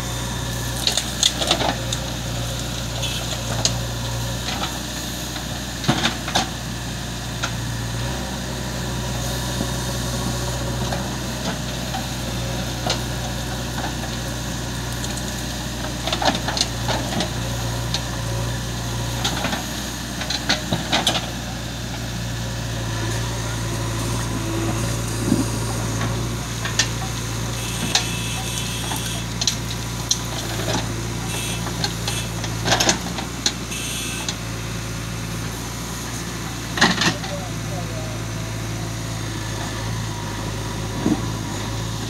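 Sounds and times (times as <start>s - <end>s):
diesel engines idling: 0.0s - 42.0s.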